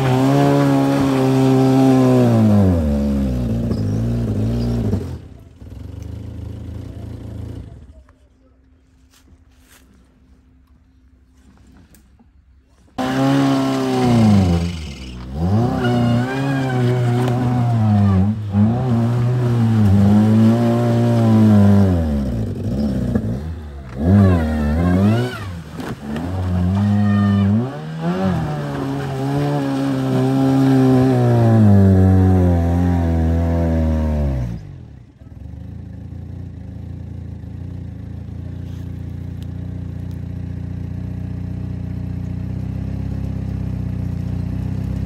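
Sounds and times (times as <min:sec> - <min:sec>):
car engine revving hard: 0:00.0 - 0:05.3, 0:13.0 - 0:34.8.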